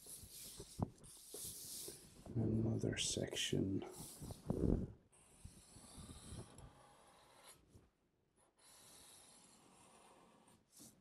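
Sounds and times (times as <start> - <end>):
marker hissing across paper: 0.0 - 2.2, 3.9 - 4.5.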